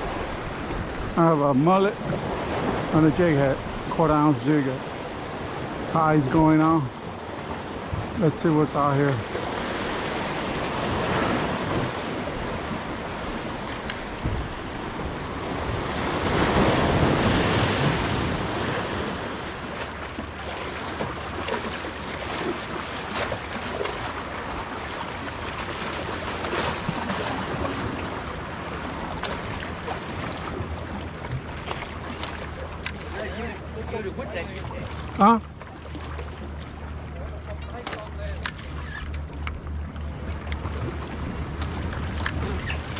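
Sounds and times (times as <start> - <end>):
waves splashing against rocks: 0.0 - 42.9
wind on microphone: 9.4 - 19.7.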